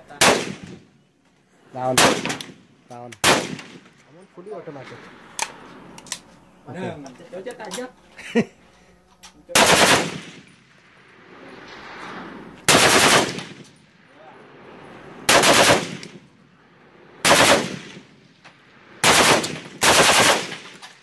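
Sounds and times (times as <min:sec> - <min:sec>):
automatic rifle bursts: 0:09.6 - 0:10.4, 0:12.7 - 0:13.4, 0:19.0 - 0:20.8.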